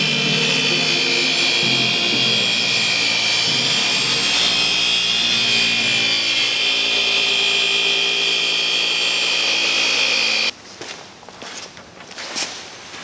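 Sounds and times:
polisher motor whine: 0:00.0 - 0:10.5.

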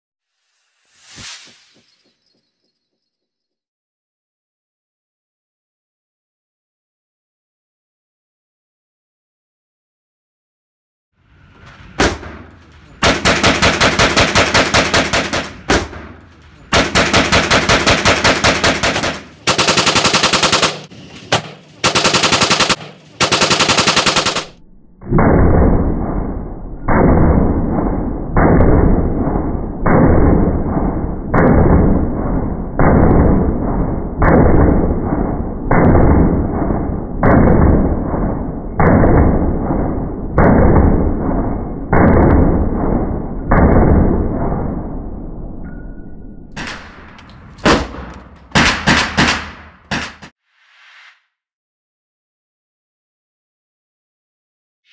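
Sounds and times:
rapid gunshots: 0:11.6 - 0:24.6, 0:47.6 - 0:50.4
deep muffled slowed shots: 0:21.8 - 0:45.7.

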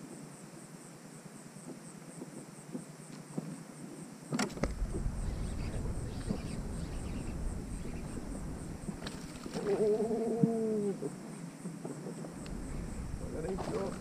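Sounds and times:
insect chirping: 0:00.0 - 0:14.0
low rumbling noise: 0:04.6 - 0:09.5, 0:12.3 - 0:14.0.

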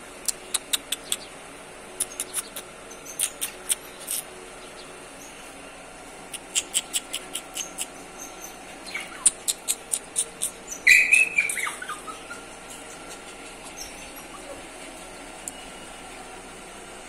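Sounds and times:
puppy biting wire bars: 0:02.0 - 0:04.3, 0:06.4 - 0:14.6
puppy squeak: 0:06.4 - 0:14.6
puppy whining: 0:06.4 - 0:15.3.

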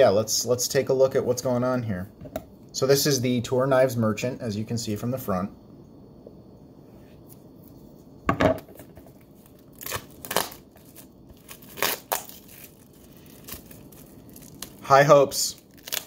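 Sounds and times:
shrink wrap crinkling tears: 0:09.1 - 0:16.0.

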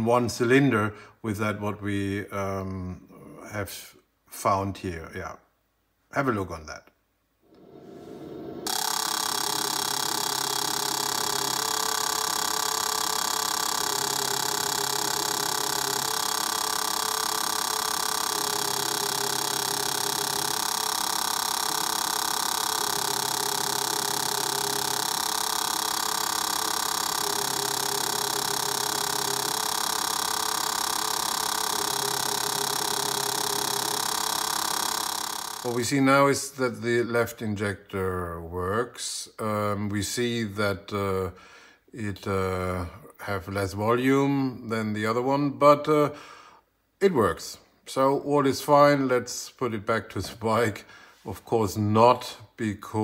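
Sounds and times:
lower hum switching on and off: 0:07.4 - 0:36.1
high mechanical buzz: 0:07.5 - 0:36.1.

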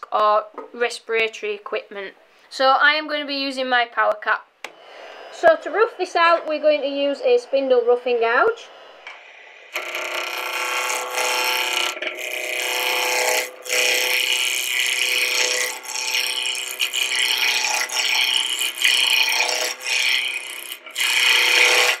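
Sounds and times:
lathe humming: 0:04.6 - 0:22.0
gouge cutting wood on lathe: 0:05.1 - 0:22.0.

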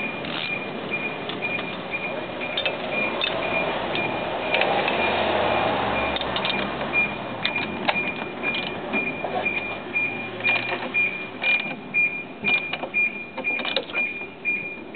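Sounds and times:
metal tools clinking and ratcheting: 0:02.4 - 0:04.7, 0:06.2 - 0:09.7, 0:10.4 - 0:11.8.

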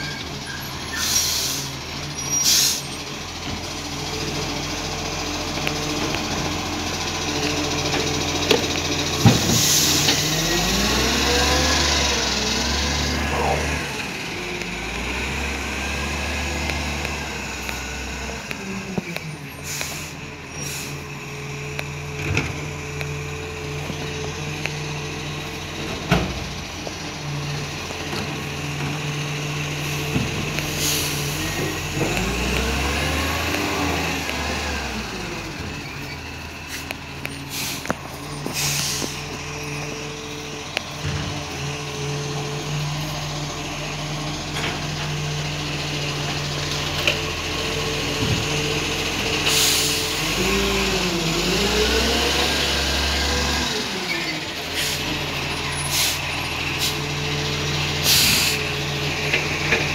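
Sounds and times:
garbage truck engine running: 0:00.0 - 0:59.9
air brake hisses: 0:00.9 - 0:02.9, 0:09.4 - 0:10.3, 0:19.6 - 0:21.0, 0:30.6 - 0:31.6, 0:36.7 - 0:39.2, 0:49.4 - 0:50.2, 0:54.7 - 0:55.1, 0:55.8 - 0:57.0, 0:58.0 - 0:58.7.

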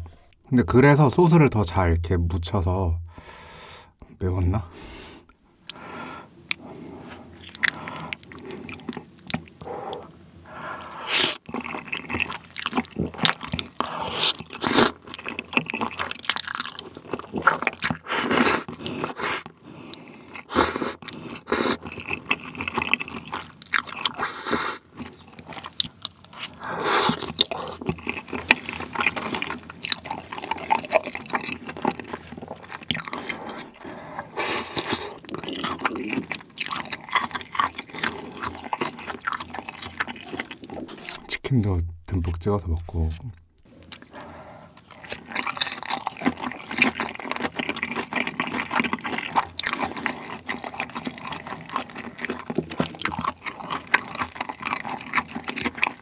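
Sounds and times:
chewing: 0:06.5 - 0:41.3, 0:43.6 - 0:56.0
slurping of saucy noodles: 0:13.8 - 0:15.0, 0:20.4 - 0:21.9.

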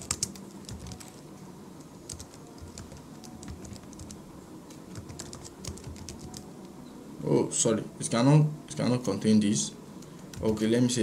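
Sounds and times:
computer keyboard typing: 0:00.0 - 0:01.2, 0:02.0 - 0:04.2, 0:04.9 - 0:06.5, 0:10.1 - 0:10.6.

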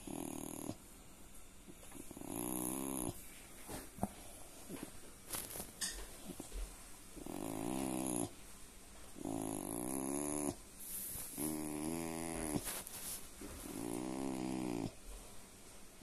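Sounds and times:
dog low rumbling groans: 0:07.2 - 0:08.3, 0:11.4 - 0:12.6.

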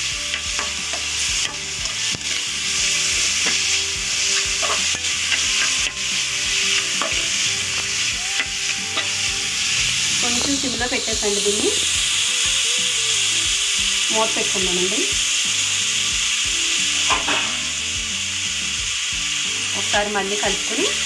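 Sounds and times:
cabbage sizzling in hot oil: 0:00.0 - 0:21.0
spoon stirring: 0:00.6 - 0:09.3.

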